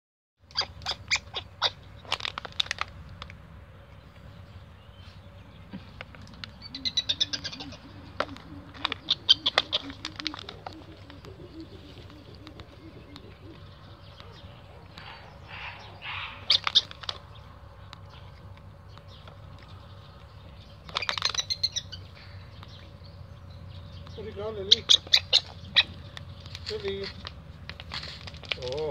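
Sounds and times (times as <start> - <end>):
high-pitched chirping: 6.6 - 17.0.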